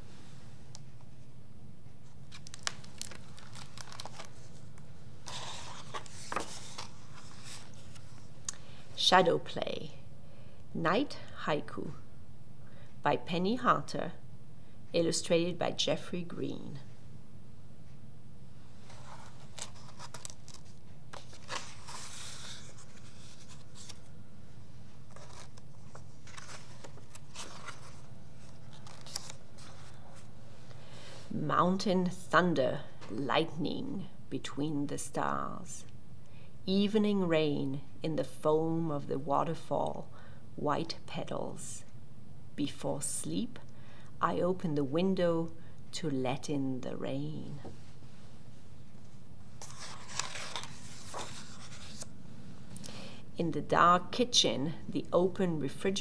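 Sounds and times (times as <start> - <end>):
paper pages rustling: 2.0 - 8.3, 18.8 - 24.2, 24.9 - 30.3, 49.6 - 52.2.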